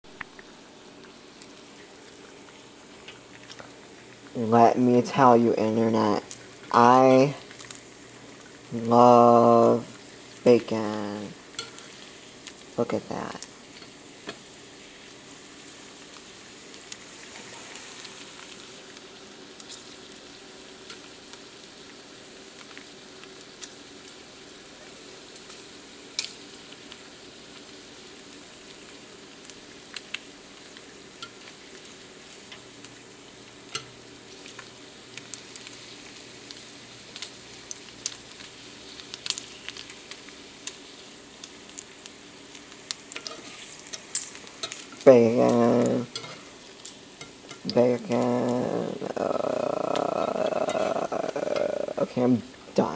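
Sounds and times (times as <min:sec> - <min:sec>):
bacon sizzling in a pan: 0:00.1 - 0:52.9
grease popping: 0:24.8 - 0:52.2.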